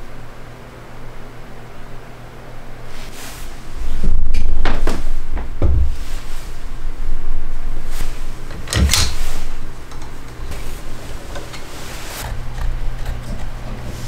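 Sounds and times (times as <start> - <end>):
low rubbing and rumbling: 3.5 - 14.0.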